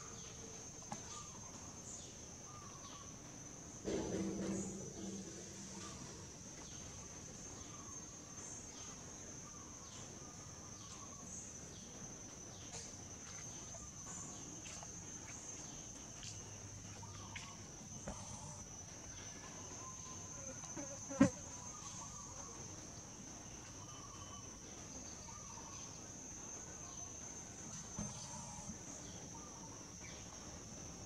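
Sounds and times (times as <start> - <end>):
insects droning: 0.0 - 31.0
sharp knock: 3.8 - 6.4.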